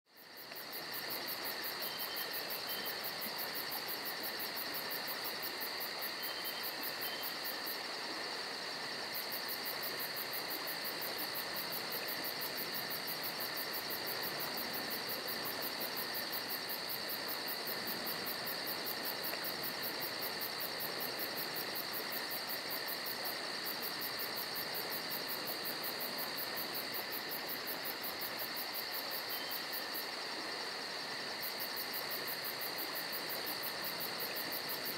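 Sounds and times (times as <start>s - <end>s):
crickets chirping: 0.1s - 34.9s
high pulsing insect trill: 0.1s - 34.9s
steady hiss: 0.2s - 34.9s.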